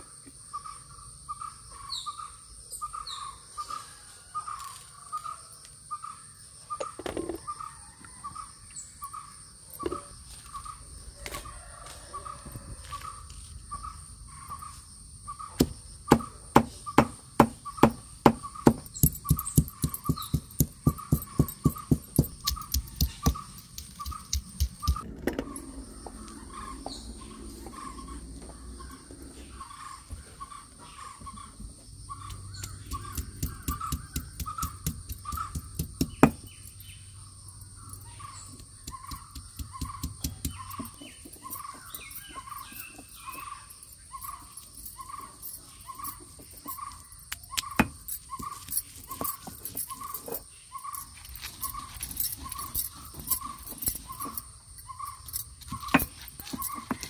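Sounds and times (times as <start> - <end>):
stone roller grinding on stone: 17.8 - 28.2, 47.8 - 54.5, 55.2 - 57.0.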